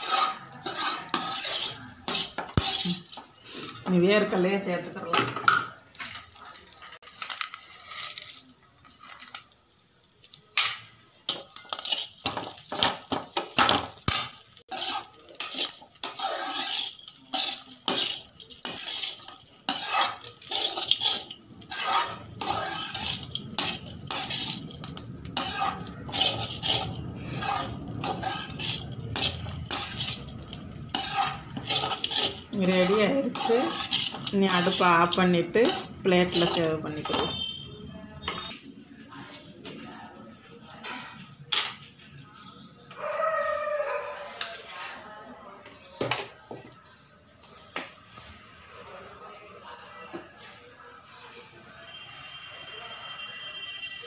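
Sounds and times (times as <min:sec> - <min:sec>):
metal spoon scraping metal pan: 0:00.0 - 0:09.4, 0:11.2 - 0:38.6.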